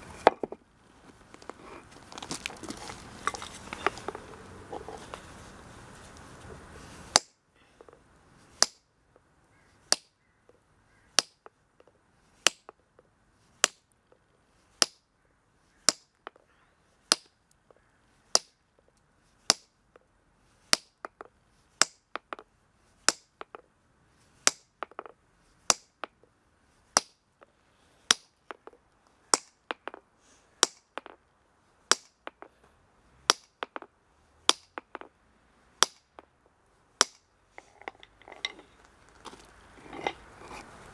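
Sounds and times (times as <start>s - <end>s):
hammer striking granite: 8.6s - 8.9s, 18.4s - 18.6s, 19.5s - 19.7s, 20.7s - 22.4s, 24.4s - 26.2s, 27.0s - 27.2s, 28.1s - 28.8s, 30.6s - 31.2s, 31.9s - 32.5s, 33.3s - 33.9s, 34.5s - 35.2s, 35.8s - 36.3s, 37.0s - 38.6s.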